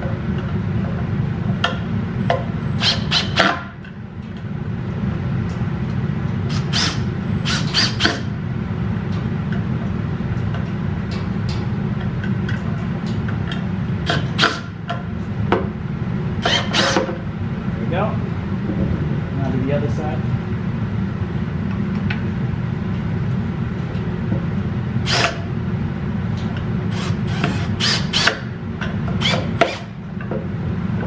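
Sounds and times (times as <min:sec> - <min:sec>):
cordless drill driving screws: 0:06.5 - 0:08.2, 0:26.9 - 0:28.3.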